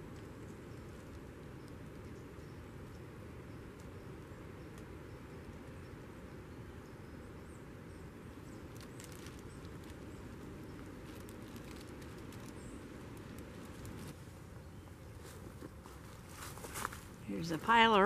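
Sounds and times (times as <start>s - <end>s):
outdoor background hiss: 0.0s - 18.0s
twigs and bark crackling: 8.1s - 14.2s, 15.2s - 18.0s.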